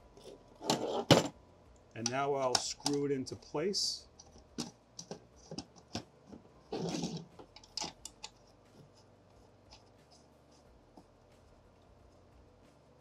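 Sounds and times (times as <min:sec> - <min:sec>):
metal and plastic parts clicking: 0:04.2 - 0:08.4.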